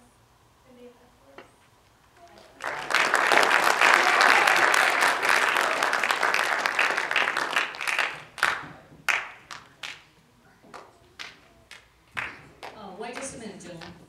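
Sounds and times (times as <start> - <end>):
audience applauding: 2.5 - 10.1, 10.8 - 14.0.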